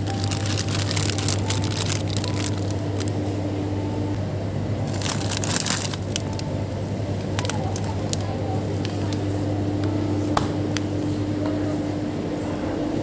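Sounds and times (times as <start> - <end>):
plastic packets crinkling: 0.0 - 3.2, 4.8 - 6.6, 7.2 - 8.5
steady low hum: 0.0 - 13.0.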